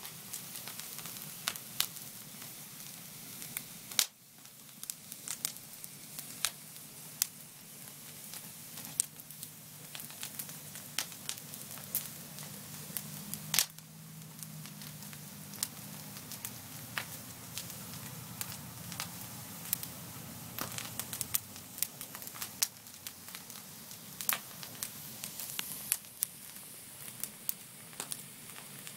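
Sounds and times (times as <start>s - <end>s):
wood fire crackling: 0.0s - 28.9s.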